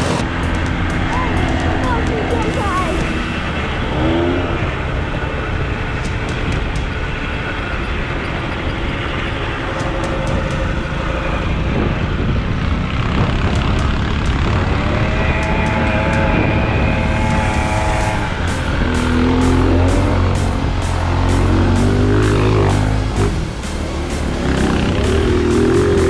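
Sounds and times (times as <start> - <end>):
go-kart motor running: 0.0 - 26.0.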